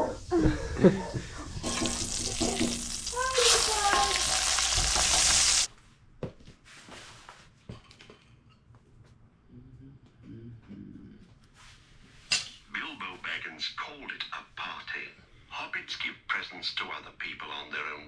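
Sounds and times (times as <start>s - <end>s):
meat sizzling in a skillet: 1.5s - 5.7s
spatula turning meat: 1.5s - 5.7s.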